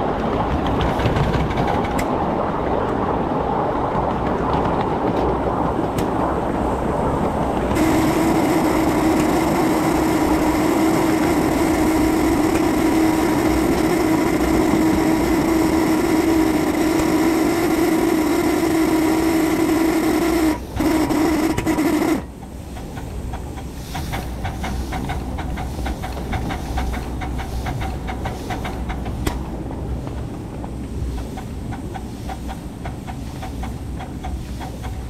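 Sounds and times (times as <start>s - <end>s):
locomotive steam hissing: 7.7s - 35.0s.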